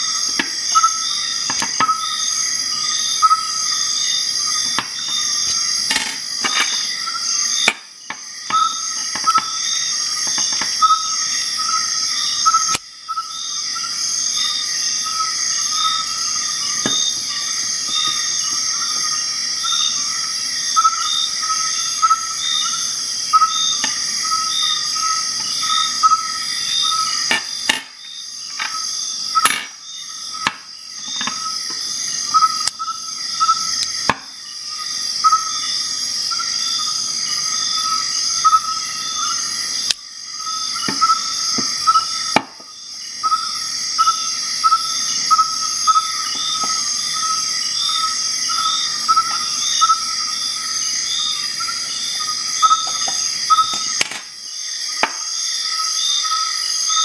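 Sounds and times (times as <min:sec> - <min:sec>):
insects chirping: 0:00.0 - 0:57.0
sharp clicks and knocks: 0:01.5 - 0:02.0.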